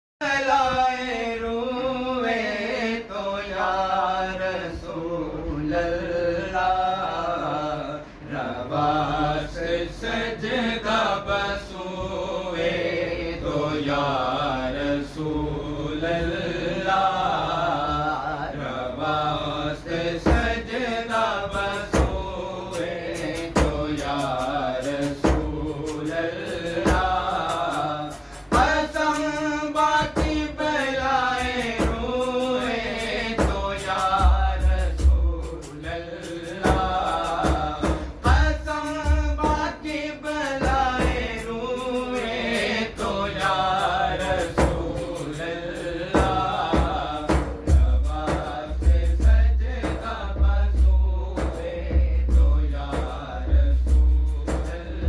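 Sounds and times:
men singing chant-like melody: 0.2 - 55.0
hand drum beating: 36.6 - 39.8, 46.1 - 54.7.

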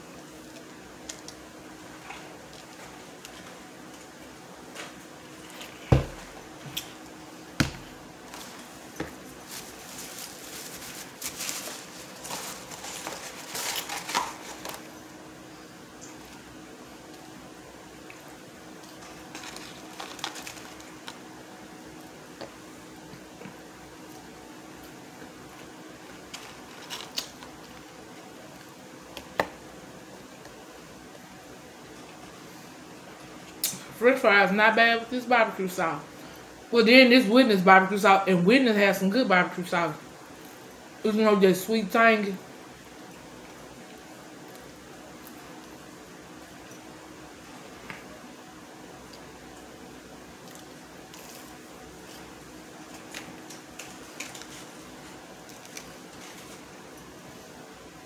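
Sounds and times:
plastic cup thud on wooden table: 5.9 - 6.3, 7.6 - 7.9
food packaging rustling: 7.6 - 15.0, 18.9 - 21.3, 26.1 - 28.0, 50.4 - 56.8.

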